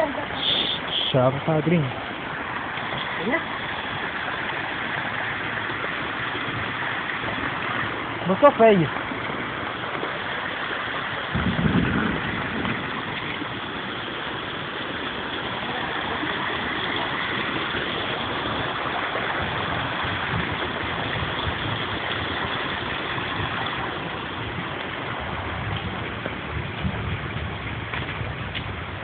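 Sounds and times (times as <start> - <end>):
heavy rain pouring: 0.0 - 29.0.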